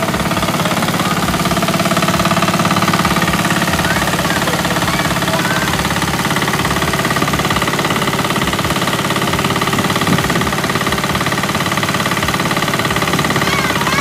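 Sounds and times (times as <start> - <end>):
grain thresher running: 0.0 - 14.0
tractor engine pulsing: 0.0 - 14.0.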